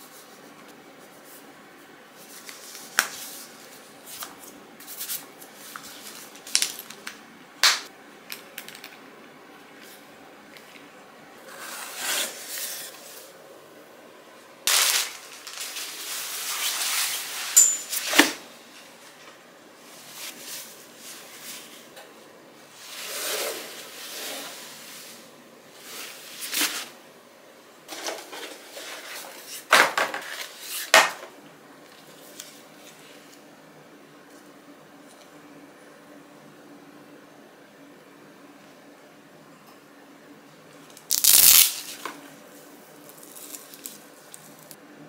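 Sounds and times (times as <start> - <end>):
cardboard and paper rustling: 14.7 - 18.4.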